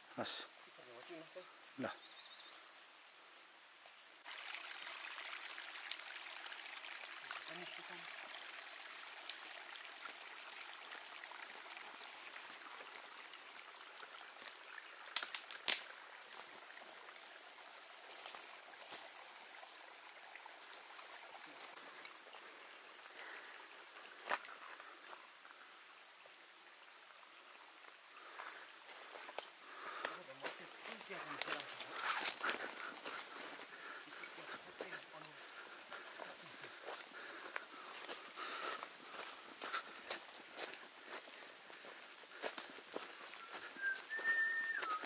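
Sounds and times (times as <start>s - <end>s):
stream trickling: 0.0s - 45.0s
bird chirping: 0.9s - 2.6s.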